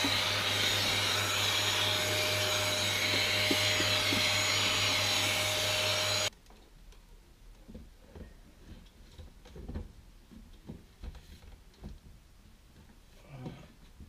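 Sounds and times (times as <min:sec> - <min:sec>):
vacuum cleaner running: 0:00.0 - 0:06.3.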